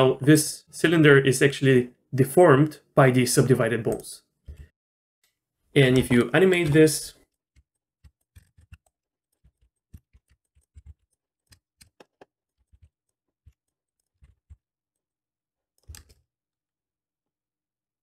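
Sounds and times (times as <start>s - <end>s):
computer mouse and keyboard clicks: 5.9s - 14.6s, 15.8s - 16.2s.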